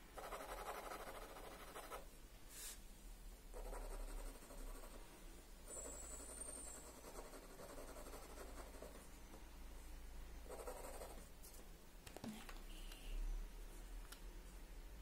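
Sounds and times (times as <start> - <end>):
pencil scratching on paper: 0.2 - 2.0, 3.5 - 5.0, 5.7 - 9.1, 10.5 - 11.3.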